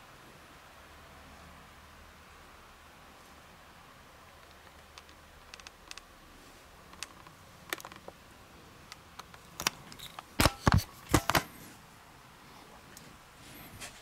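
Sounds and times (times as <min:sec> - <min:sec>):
sharp clicks and knocks: 0:04.4 - 0:06.1, 0:06.9 - 0:08.2, 0:08.9 - 0:11.5.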